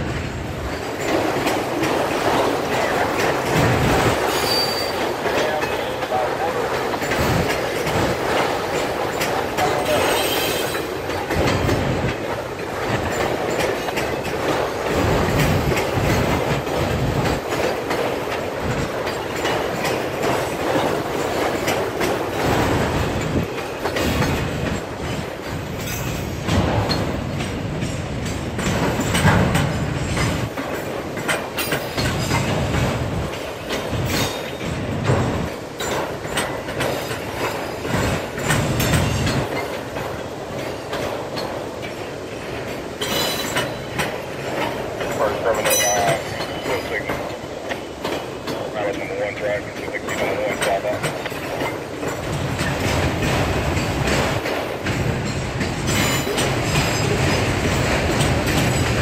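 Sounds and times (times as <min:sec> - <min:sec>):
steel wheels rumbling on rail: 0:00.0 - 0:59.0
wheels clacking over rail joints: 0:00.0 - 0:59.0.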